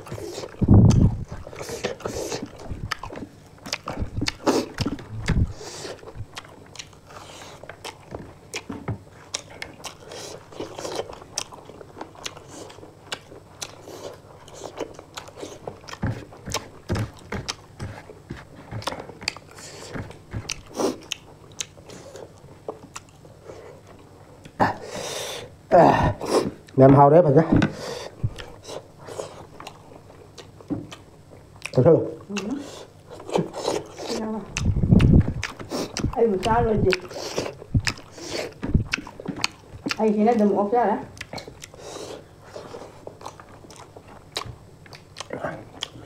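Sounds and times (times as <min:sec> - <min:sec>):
people chewing food: 0:00.0 - 0:46.0
wet mouth clicks: 0:31.6 - 0:40.0.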